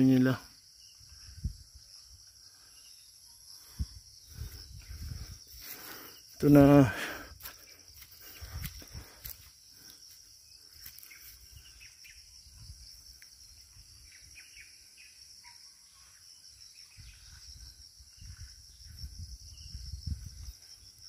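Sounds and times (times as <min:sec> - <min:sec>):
insects droning: 0:00.0 - 0:21.0
bird chirps: 0:13.6 - 0:17.7.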